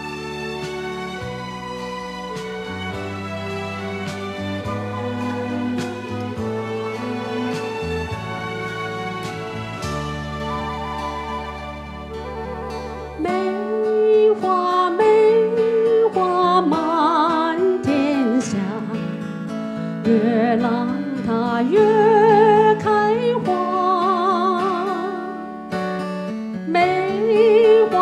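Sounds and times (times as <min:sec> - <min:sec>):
backing music with guitar: 0:00.0 - 0:28.0
woman singing a slow ballad: 0:12.1 - 0:19.3, 0:20.0 - 0:25.5, 0:26.7 - 0:28.0.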